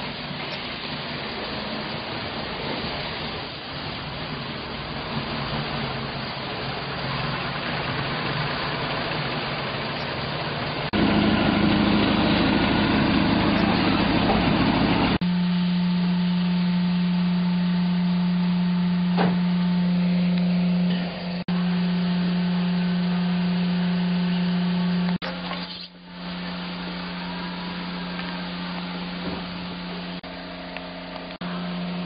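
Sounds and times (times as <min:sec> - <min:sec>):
boat engine running: 0:00.0 - 0:32.0.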